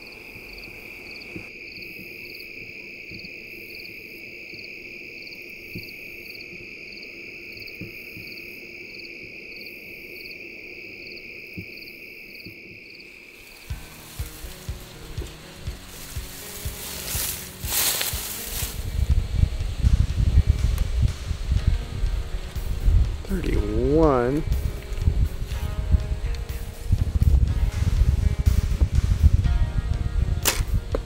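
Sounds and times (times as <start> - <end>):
crickets trilling: 0.0 - 30.9
music with a steady beat: 13.6 - 31.0.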